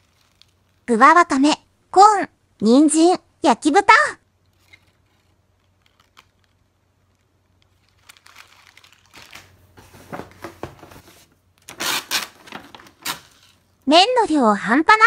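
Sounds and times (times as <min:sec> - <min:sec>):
food packets rustling: 0:00.0 - 0:00.9, 0:04.5 - 0:13.7.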